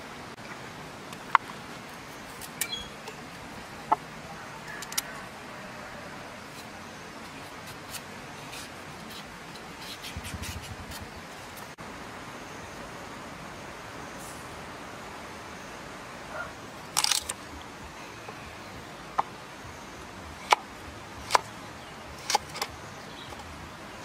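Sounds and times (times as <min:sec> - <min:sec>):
steady hiss: 0:00.0 - 0:24.0
short bird chirps: 0:02.6 - 0:03.0
knife scraping a carrot: 0:06.5 - 0:11.2.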